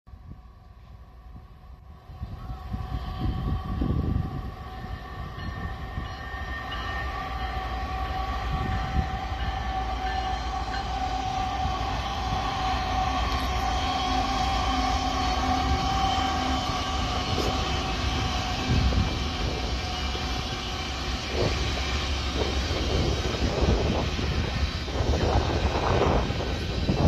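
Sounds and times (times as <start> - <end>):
diesel locomotive engine rumble: 0.1 - 27.0
steady high tones: 3.2 - 27.0.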